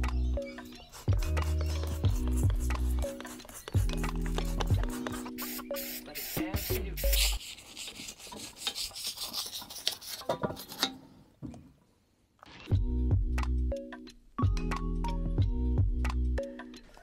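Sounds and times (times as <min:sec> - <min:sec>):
background music: 0:00.0 - 0:07.9, 0:12.5 - 0:17.0.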